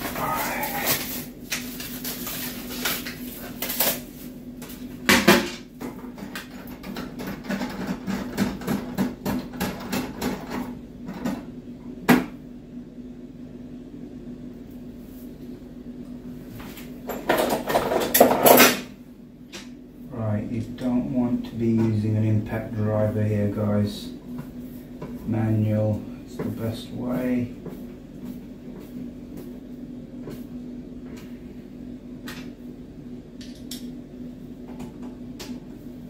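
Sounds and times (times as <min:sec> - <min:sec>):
rustling and scraping: 0:00.0 - 0:04.9
low steady hum: 0:00.0 - 0:36.0.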